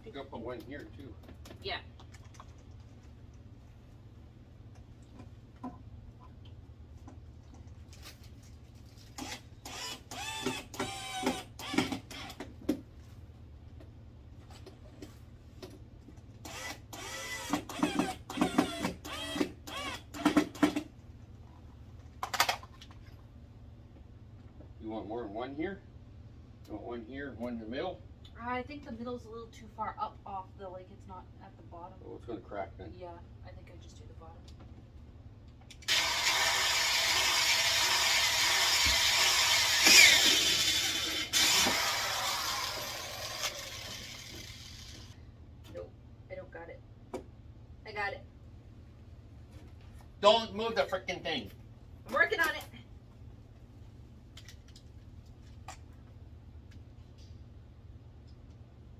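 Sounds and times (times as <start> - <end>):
cordless drill whirring: 9.2 - 12.4, 16.5 - 20.4, 35.9 - 45.2.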